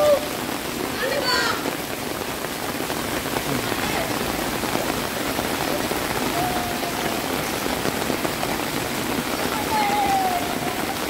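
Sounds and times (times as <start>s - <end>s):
heavy rain on hard surfaces: 0.0s - 11.0s
faint voices: 9.2s - 11.0s.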